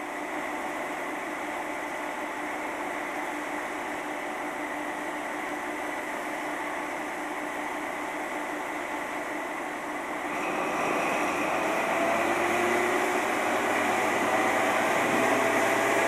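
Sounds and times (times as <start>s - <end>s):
diesel engine droning with whistle: 10.3s - 16.0s.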